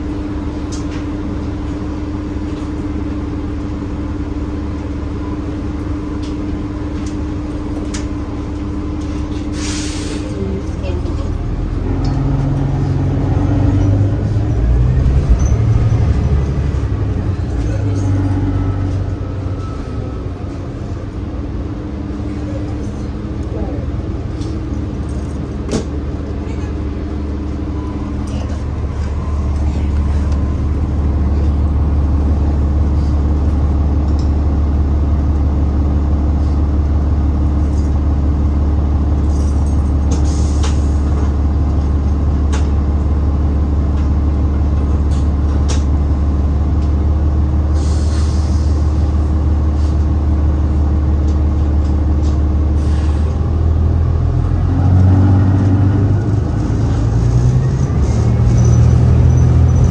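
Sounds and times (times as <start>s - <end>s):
bus diesel engine idling: 0.0s - 59.9s
short air hisses: 9.6s - 10.2s.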